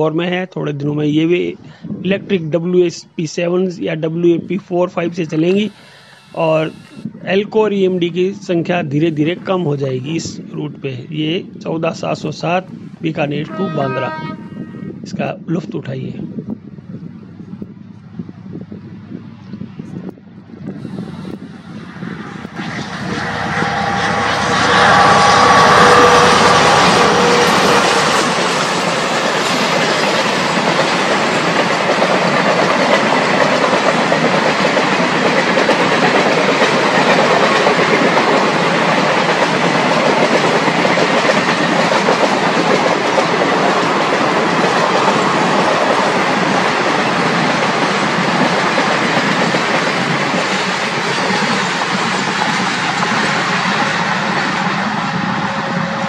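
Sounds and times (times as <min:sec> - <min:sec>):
diesel locomotive passing: 0:05.0 - 0:07.2, 0:17.0 - 0:56.0
train coaches rolling on rails: 0:20.8 - 0:56.0.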